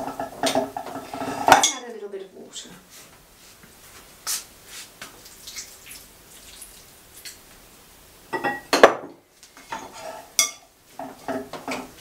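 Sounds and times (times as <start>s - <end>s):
water pouring into a bowl: 5.2s - 7.4s.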